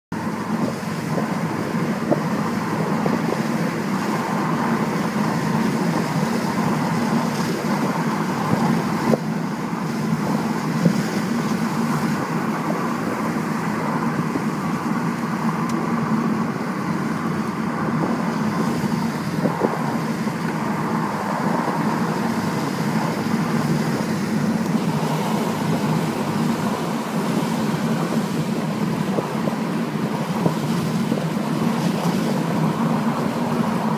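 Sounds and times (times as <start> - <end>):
car engine and tyre noise: 0.1 - 33.9.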